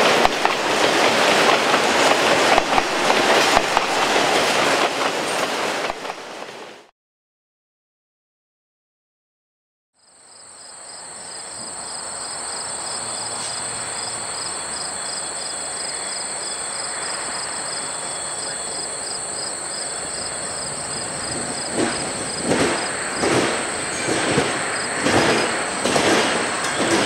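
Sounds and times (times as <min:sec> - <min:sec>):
train wheels knocking over track: 0:00.0 - 0:06.4, 0:19.9 - 0:27.0
train running: 0:00.0 - 0:06.9, 0:10.6 - 0:27.0
insects droning and trilling: 0:10.0 - 0:27.0.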